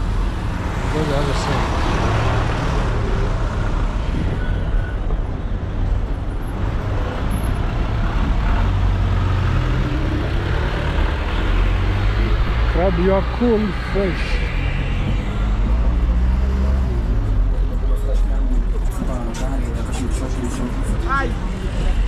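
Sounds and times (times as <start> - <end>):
traffic engines rumbling: 0.0 - 22.0.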